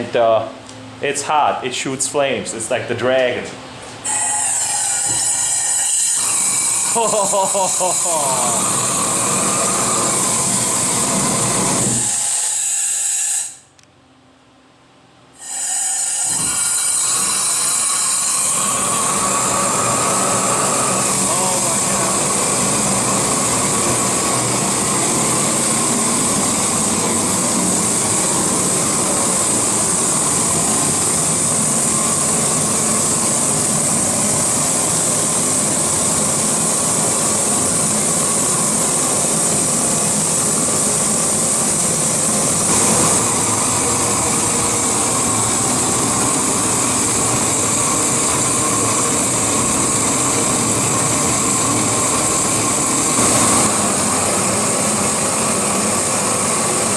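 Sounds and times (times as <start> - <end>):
heating torch roaring: 6.7 - 12.1, 17.5 - 56.9.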